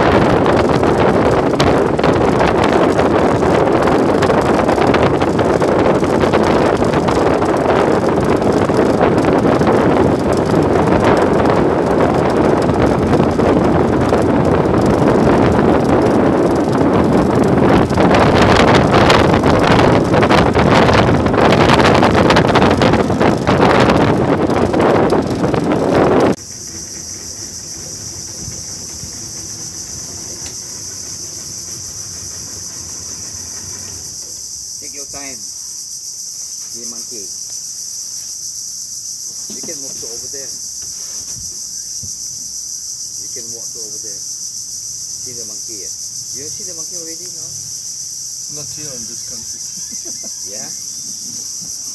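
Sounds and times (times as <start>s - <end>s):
boat motor running: 0.0s - 34.7s
wind buffeting microphone: 0.0s - 35.5s
insects droning: 0.0s - 51.9s.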